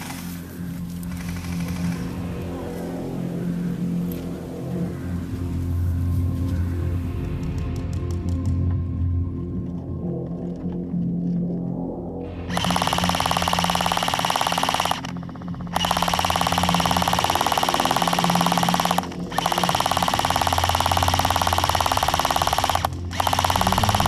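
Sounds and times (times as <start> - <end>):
airsoft gun firing bursts: 12.5 - 24.0.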